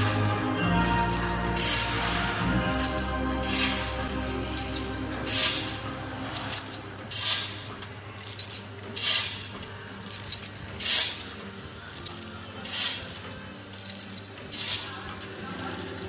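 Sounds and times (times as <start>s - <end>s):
machine low hum: 0.0s - 16.0s
packing machine hissing rustle: 0.0s - 16.0s.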